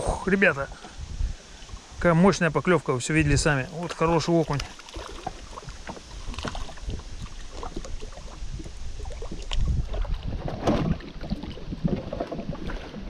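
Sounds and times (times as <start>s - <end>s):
wind rumbling on microphone: 0.0s - 13.0s
water lapping at a boat: 3.2s - 13.0s
fish splashing at surface: 4.4s - 8.4s.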